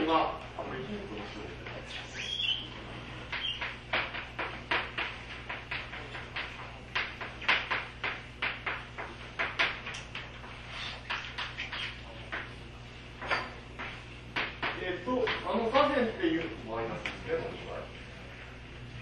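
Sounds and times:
chalk tapping and scraping on blackboard: 3.3 - 12.6.

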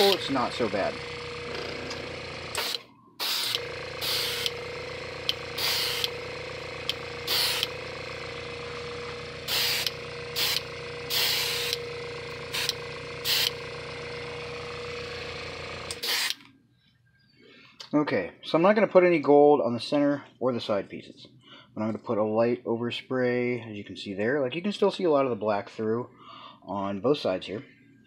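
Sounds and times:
airbrush hissing bursts: 0.0 - 1.0, 2.4 - 7.9, 9.4 - 13.6, 15.9 - 16.4
air compressor humming: 0.0 - 16.5.

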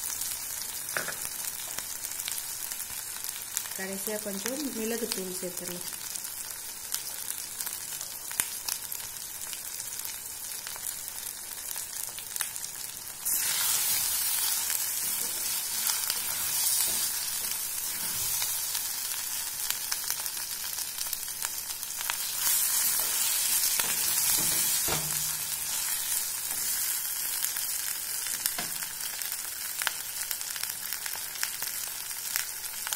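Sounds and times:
food sizzling in a pot: 0.0 - 32.9
wooden spatula scraping: 13.3 - 18.8.

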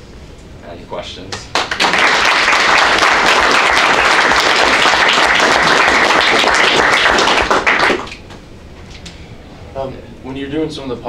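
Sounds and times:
audience applauding: 1.5 - 8.2.

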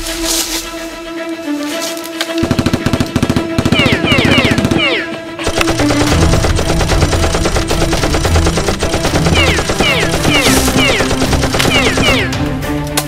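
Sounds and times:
music track: 0.0 - 13.0
machine-gun fire: 2.4 - 12.3.

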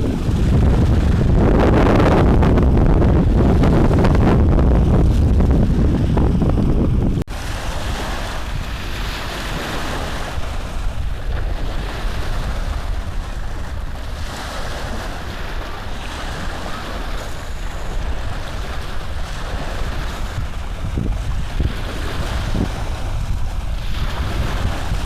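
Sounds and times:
rushing noise with low rumble: 0.0 - 7.5.

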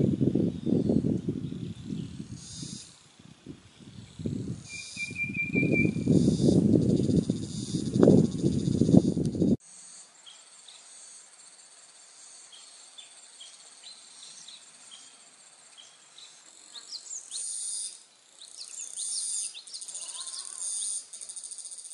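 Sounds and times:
insects trilling and buzzing: 0.1 - 21.9
bird chirps: 4.7 - 9.0.

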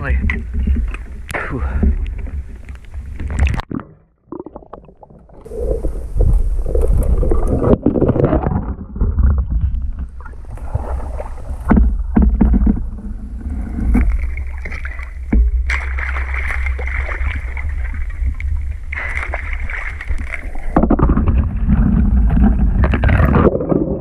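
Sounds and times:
water rumble against microphone: 0.0 - 24.0
water splashing around swimmer: 14.0 - 24.0.

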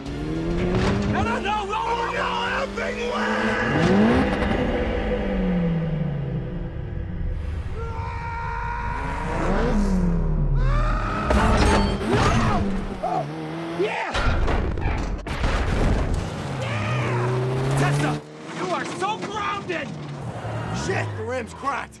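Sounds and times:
car engine revving: 0.0 - 7.8, 9.0 - 13.9, 16.1 - 21.4
dramatic music: 2.5 - 12.1.

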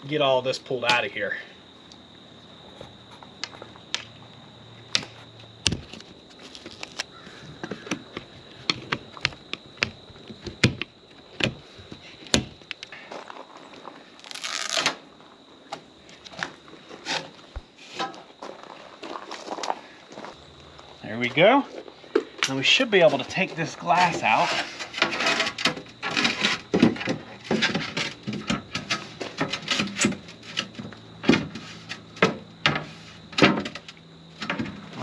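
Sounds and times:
scraping tearing rasp: 24.2 - 26.8.

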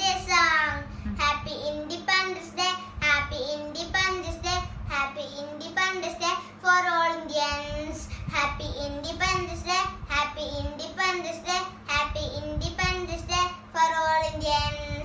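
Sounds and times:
boy singing unaccompanied: 0.0 - 15.0.

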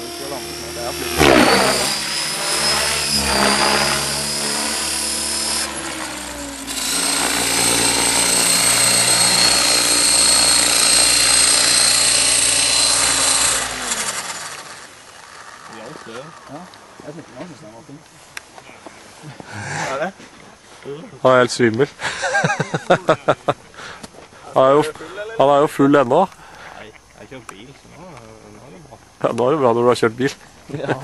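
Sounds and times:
rc helicopter motor whine: 0.0 - 17.7
rotor hum: 0.0 - 17.8.

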